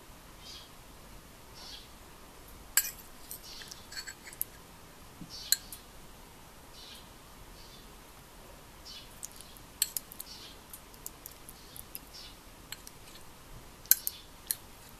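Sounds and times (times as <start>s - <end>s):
spoon clinking against ceramic bowl: 2.8s - 4.2s, 12.7s - 12.9s, 13.9s - 14.6s.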